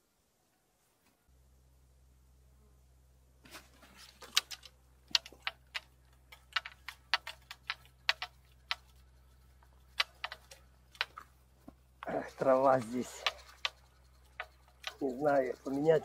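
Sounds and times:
fishing reel clicking: 12.8s - 16.0s.

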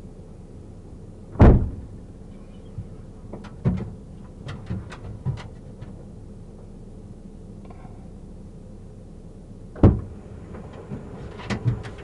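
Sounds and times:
car door slamming: 1.4s - 1.9s, 9.8s - 10.2s.

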